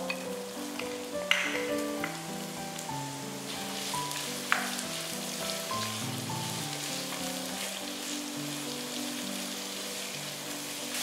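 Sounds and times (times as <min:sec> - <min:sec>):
light background music: 0:00.0 - 0:11.0
onions sizzling in oil: 0:00.0 - 0:11.0
spatula tap: 0:00.8 - 0:02.2, 0:04.5 - 0:04.8.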